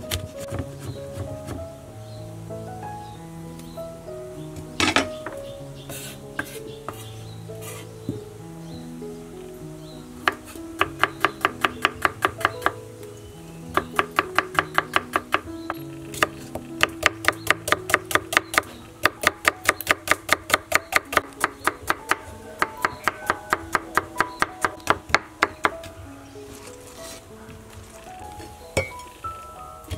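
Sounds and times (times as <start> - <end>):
background music: 0.0 - 29.9.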